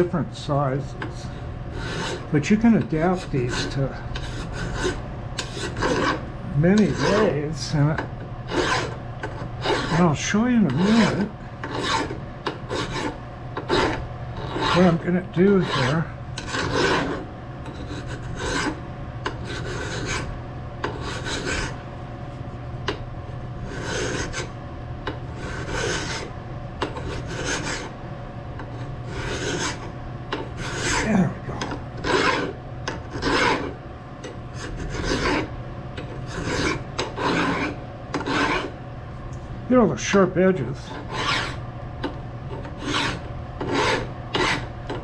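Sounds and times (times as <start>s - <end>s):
hand file rasping on metal: 1.7s - 2.3s, 3.0s - 6.2s, 6.8s - 7.4s, 8.5s - 10.1s, 10.7s - 21.8s, 23.6s - 24.5s, 25.4s - 27.9s, 28.6s - 33.8s, 34.6s - 38.7s, 40.9s - 41.6s, 42.6s - 44.7s.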